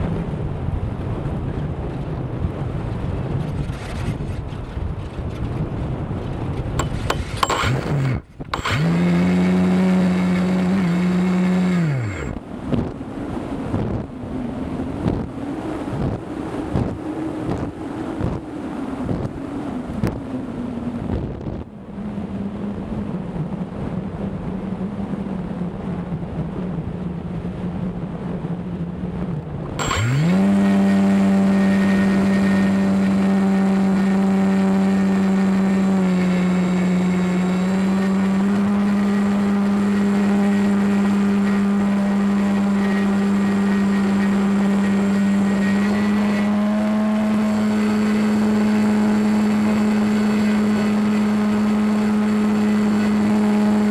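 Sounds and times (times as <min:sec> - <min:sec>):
model plane motor whining: 0:06.8 - 0:12.4, 0:29.8 - 0:53.9.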